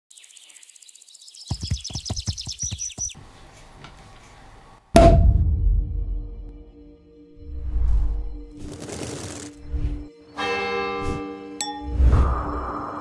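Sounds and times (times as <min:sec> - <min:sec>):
music with drum hits: 0:05.0 - 0:06.6.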